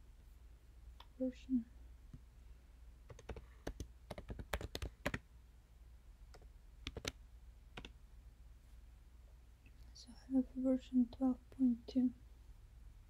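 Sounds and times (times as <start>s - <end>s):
typing on computer keyboard: 3.1s - 5.2s, 6.3s - 7.2s, 7.8s - 8.0s.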